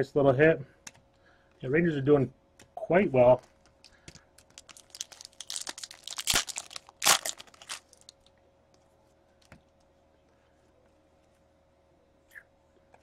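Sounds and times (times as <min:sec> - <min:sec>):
wrapper crinkling: 0:03.8 - 0:08.3
wrapper ripping: 0:04.4 - 0:08.3.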